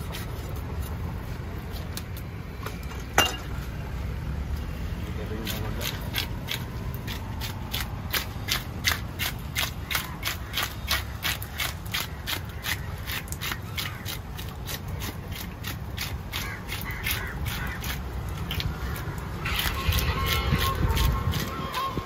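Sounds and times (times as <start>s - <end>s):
knife scraping fish scales: 5.4s - 21.9s.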